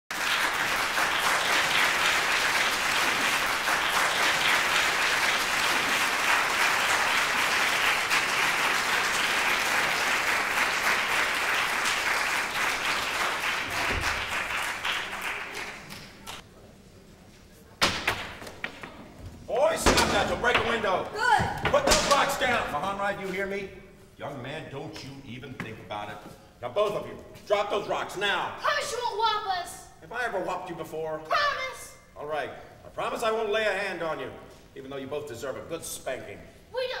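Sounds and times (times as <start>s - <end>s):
audience applauding: 0.1s - 16.4s.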